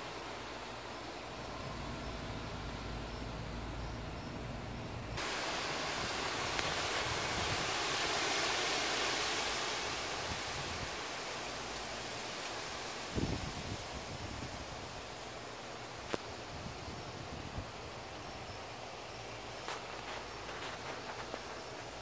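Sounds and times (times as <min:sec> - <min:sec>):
storm wind rushing in trees: 0:05.0 - 0:22.0.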